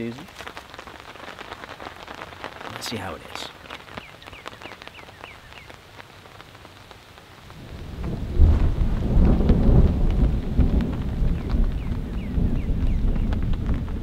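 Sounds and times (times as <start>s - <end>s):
light rain pattering: 0.0s - 14.0s
thunder rumbling: 7.5s - 14.0s.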